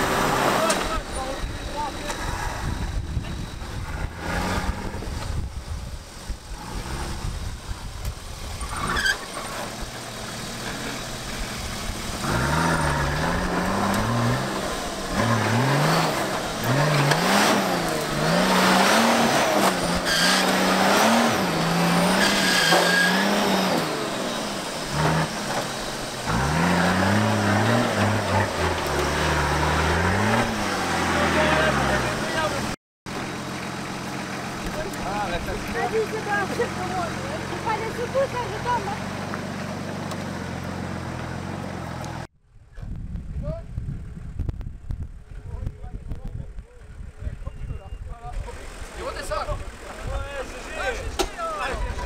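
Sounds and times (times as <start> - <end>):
engine revving: 0.0 - 5.6, 6.2 - 42.3
low engine rumbling: 0.0 - 52.0.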